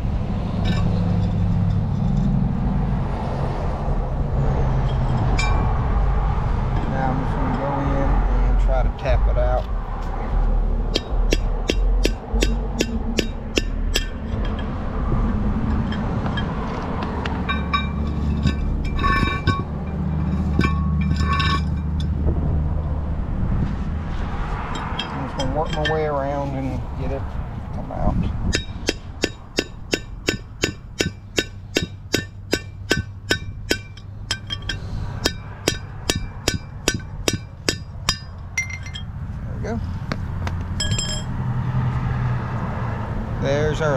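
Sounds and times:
low wind rumble on microphone: 0.0 - 31.2
ringing metallic clinks: 4.8 - 5.8, 17.3 - 22.2, 24.7 - 26.2, 28.5 - 39.1, 40.8 - 41.4
hammer striking metal: 10.9 - 14.9, 15.6 - 22.2, 24.7 - 26.3, 28.5 - 39.1, 40.8 - 41.4.

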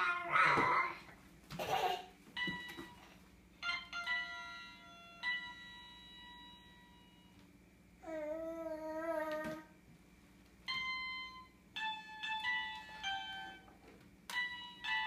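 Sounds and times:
electronic toy piano beeps: 2.4 - 7.3.

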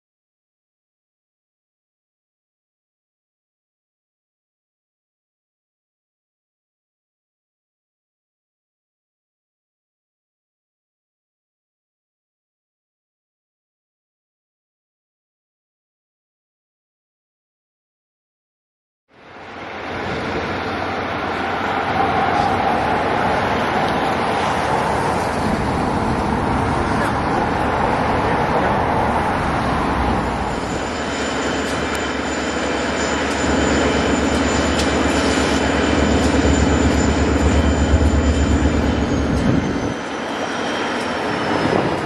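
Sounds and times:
diesel locomotive engine drone: 19.1 - 42.0
loud rushing noise: 19.4 - 42.0.

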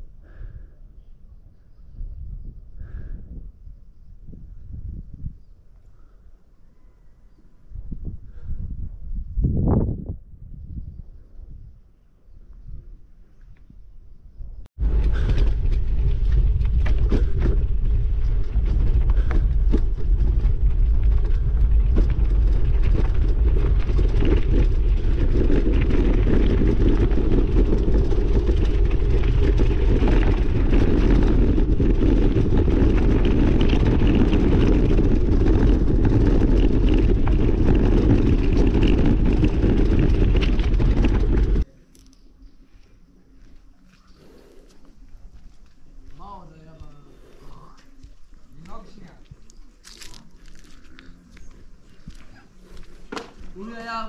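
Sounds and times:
wind buffeting microphone: 0.0 - 41.7
rumble of travel on gravel: 0.0 - 54.0.

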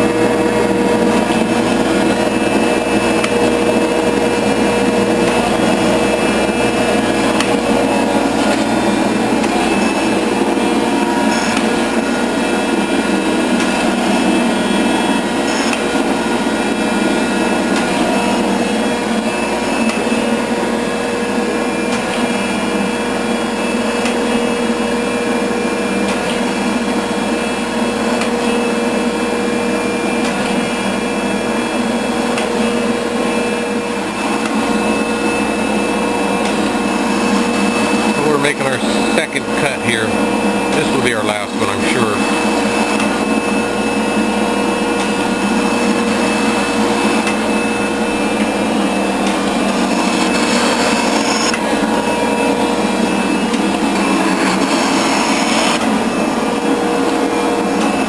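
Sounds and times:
high whine of fixed tones: 0.0 - 58.0
hydraulic shaper running: 0.0 - 58.0.

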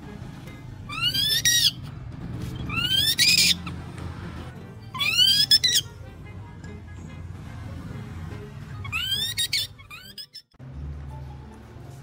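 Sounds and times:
faint background music: 0.0 - 12.0
baby monkey high calls: 0.9 - 1.8, 2.6 - 3.8, 4.9 - 5.9, 8.8 - 10.5.

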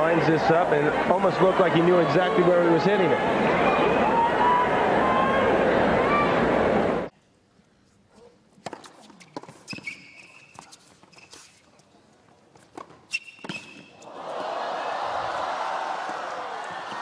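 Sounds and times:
crowd noise: 0.0 - 7.1, 13.7 - 17.0
tennis shoes squeaking: 8.1 - 14.1
racket striking tennis ball: 8.6 - 10.8, 12.7 - 14.0
ball bouncing on court: 12.7 - 14.0.

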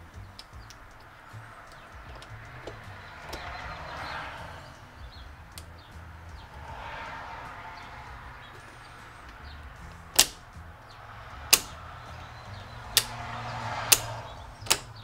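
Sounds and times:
sharp plastic clicks: 0.0 - 3.7, 9.3 - 10.5, 11.4 - 11.9, 12.8 - 15.0.

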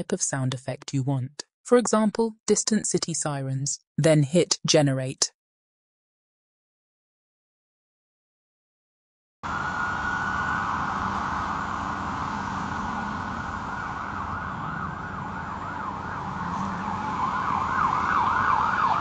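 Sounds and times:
city background noise: 9.4 - 19.0
emergency sirens wailing: 9.4 - 19.0.

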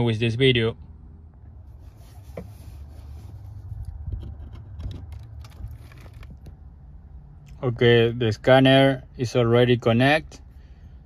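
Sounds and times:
low steady rumble: 0.0 - 11.0
plastic rubbing and scraping: 1.7 - 6.6.

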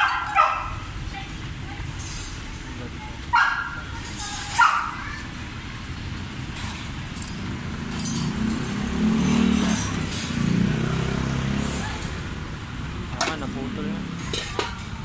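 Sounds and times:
vehicle engine rumble: 0.0 - 15.0
metallic clinks of tools: 6.5 - 10.4.

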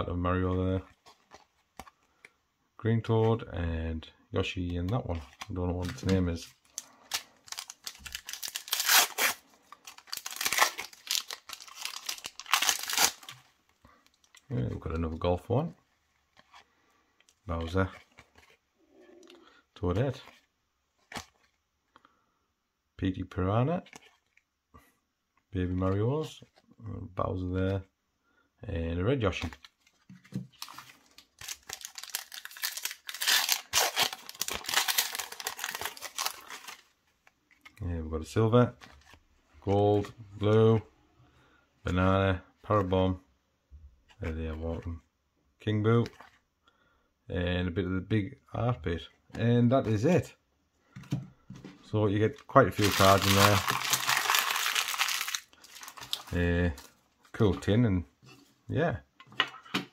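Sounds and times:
card pack wrapper ripping: 5.3 - 13.5, 30.5 - 36.9, 52.7 - 56.9.

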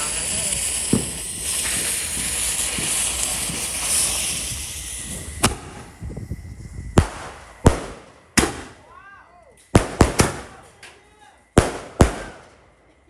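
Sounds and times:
fuses hissing and sputtering: 0.0 - 8.8
firework bangs: 0.0 - 9.0, 9.7 - 12.8.

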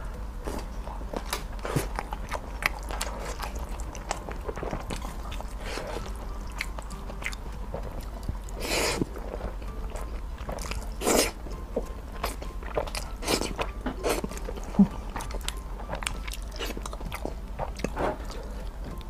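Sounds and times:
slurping and chewing noodles: 0.6 - 18.8.

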